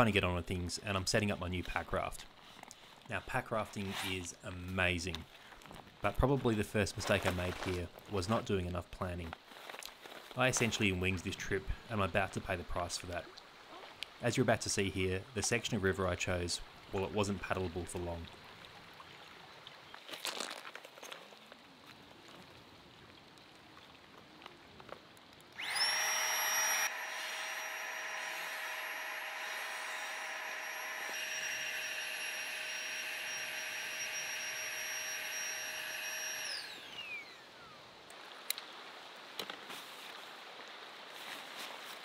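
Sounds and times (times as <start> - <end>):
inflation pump motor whine: 25.6 - 37.7.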